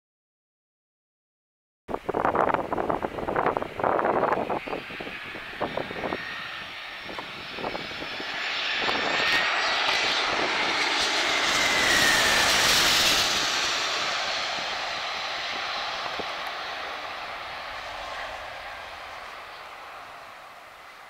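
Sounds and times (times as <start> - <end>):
jet engine noise and whine: 1.9 - 21.0
wind buffeting microphone: 1.9 - 21.0.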